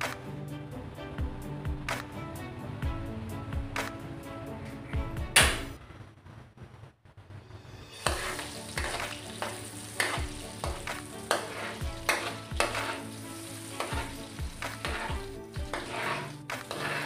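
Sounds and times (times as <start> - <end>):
fat sizzling in a pan: 7.6 - 17.0
metal ladle scraping a wok: 7.9 - 17.0.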